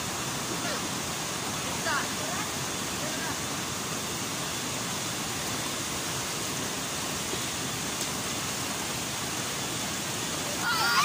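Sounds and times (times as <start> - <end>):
water rushing over boulders: 0.0 - 11.0.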